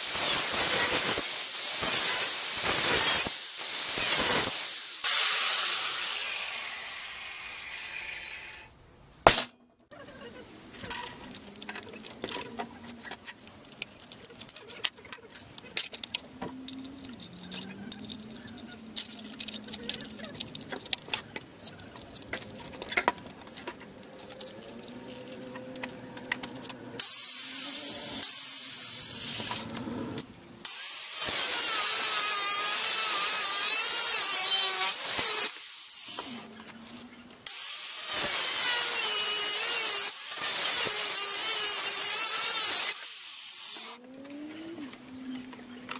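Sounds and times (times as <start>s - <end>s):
angle grinder cutting steel: 0.0s - 8.7s, 27.0s - 29.8s, 30.6s - 36.6s, 37.4s - 44.0s.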